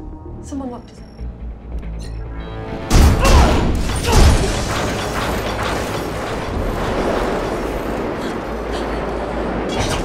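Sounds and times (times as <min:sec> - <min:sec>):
low rumble: 0:04.4 - 0:10.0.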